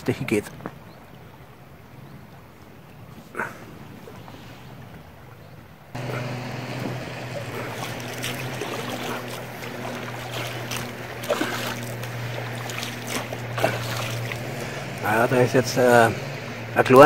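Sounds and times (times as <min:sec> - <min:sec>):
river water lapping against boat: 0:00.0 - 0:17.0
steady low hum: 0:06.0 - 0:17.0.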